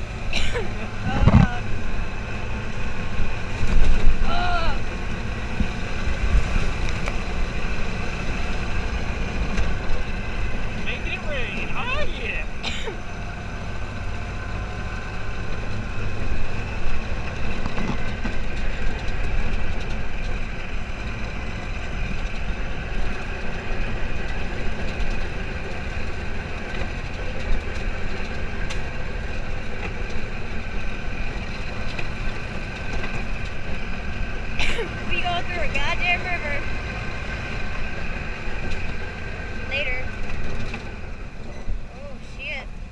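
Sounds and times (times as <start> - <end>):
buggy engine running: 0.0 - 42.9.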